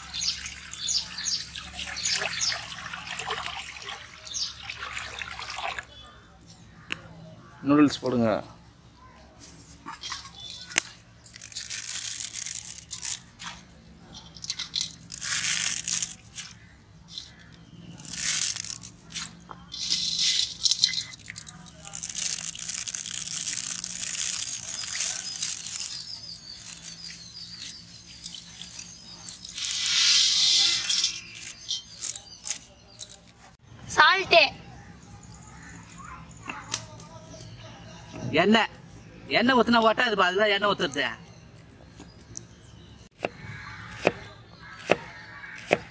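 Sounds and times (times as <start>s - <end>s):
dry noodles crackling and rustling: 9.3s - 33.6s.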